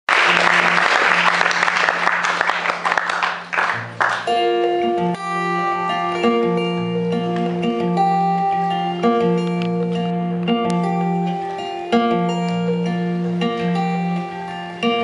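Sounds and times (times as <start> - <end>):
audience applause: 0.1 - 4.4
acoustic guitar playing: 0.1 - 15.0.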